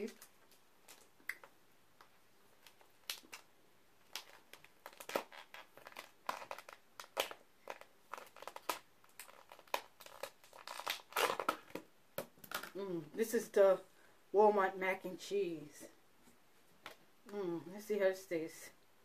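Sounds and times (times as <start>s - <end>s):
plastic lid crinkling and crackling: 0.1s - 12.8s.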